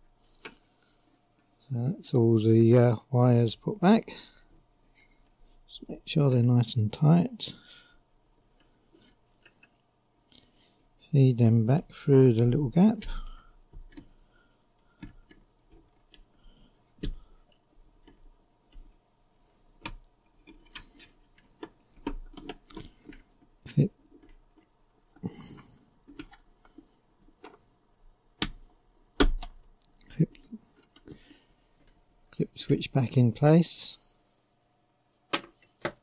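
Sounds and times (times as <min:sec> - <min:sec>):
small plastic clicks and knocks: 0:14.8 - 0:19.0, 0:19.8 - 0:25.2, 0:26.0 - 0:27.7, 0:35.3 - 0:36.0.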